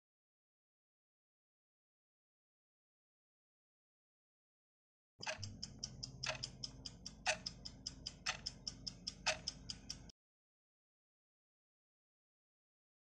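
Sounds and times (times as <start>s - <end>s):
clock ticking: 5.2s - 10.1s.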